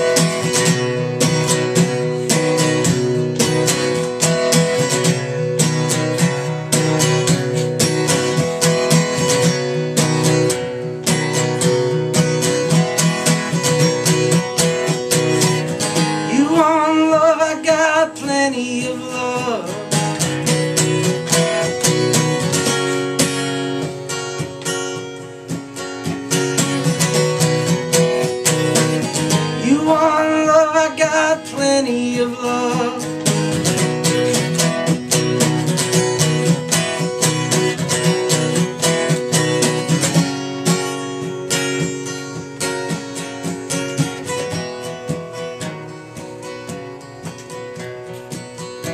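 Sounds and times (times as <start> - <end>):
acoustic guitar strumming: 0.0 - 48.9
man singing: 16.2 - 20.4, 29.3 - 33.7.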